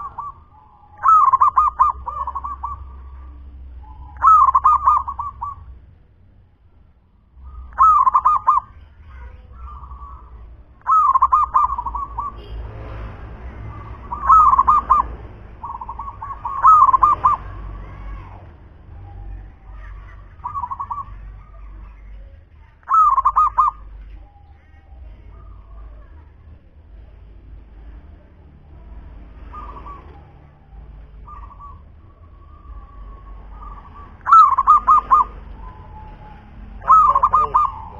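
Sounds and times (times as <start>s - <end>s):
dove cooing: 0.0s - 5.7s, 7.4s - 8.8s, 9.5s - 12.6s, 13.7s - 17.9s, 19.0s - 26.2s, 29.4s - 37.9s.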